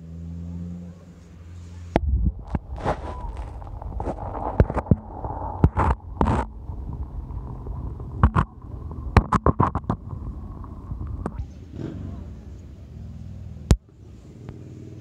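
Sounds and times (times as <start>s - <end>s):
muffled underwater river rumble: 1.9s - 13.8s
sharp clicks and knocks: 2.0s - 11.4s.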